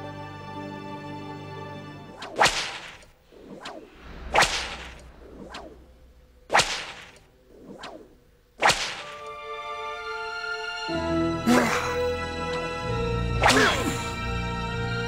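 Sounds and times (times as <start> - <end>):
whip cracks: 2.1 - 5.8, 6.5 - 9.3, 13.4 - 14.0
whip swish: 2.1 - 5.8, 6.5 - 9.3, 13.4 - 14.0.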